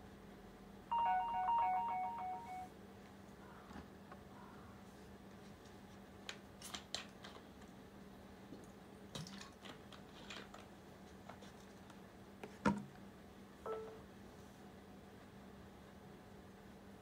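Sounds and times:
faint tone: 0.9 - 2.7, 13.7 - 14.0.

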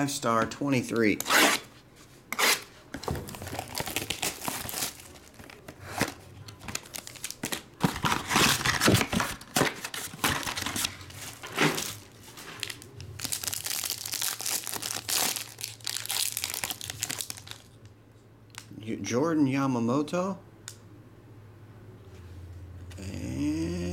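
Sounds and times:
plastic shrink wrap crinkling: 3.2 - 17.8
foil pack crinkling and tearing: 3.3 - 17.8.

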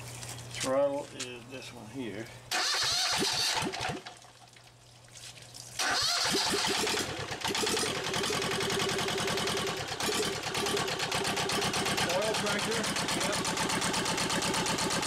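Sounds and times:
electric starter cranking: 2.5 - 4.1, 5.8 - 15.0
diesel engine running: 6.6 - 15.0.

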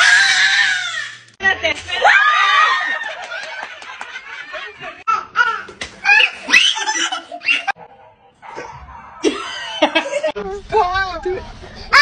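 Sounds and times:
children laughing: 1.9 - 7.8, 9.2 - 10.4.

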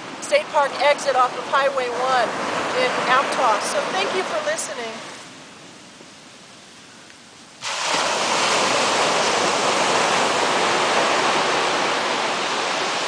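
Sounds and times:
surf breaking on beach: 7.6 - 13.0.

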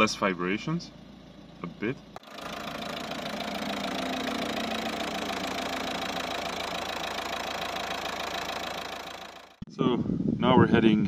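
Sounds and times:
diesel car engine idling: 0.9 - 9.6.

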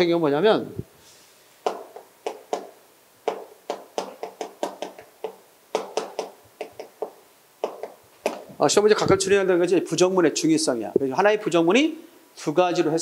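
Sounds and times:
chalk tapping on blackboard: 1.6 - 2.7, 3.3 - 8.5.

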